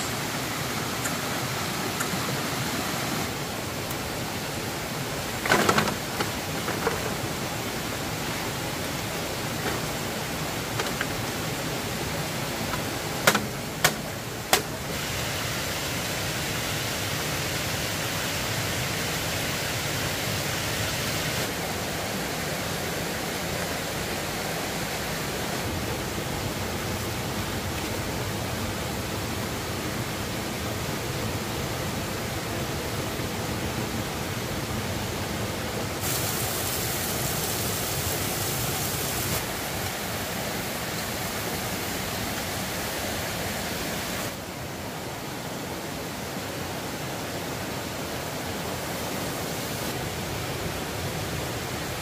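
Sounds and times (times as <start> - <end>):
steady rushing hiss: 0.0 - 52.0.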